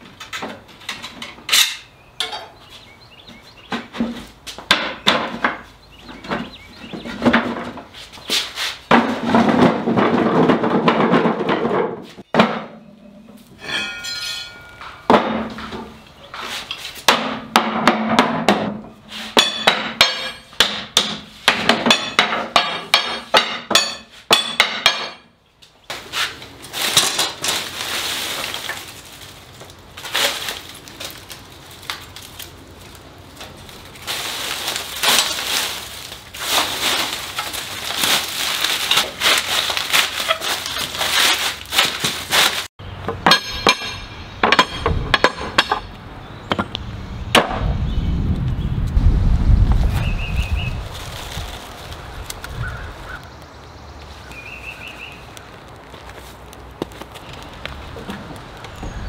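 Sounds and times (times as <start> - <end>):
dry wood shavings rustling: 25.9 - 42.7, 49.6 - 59.0.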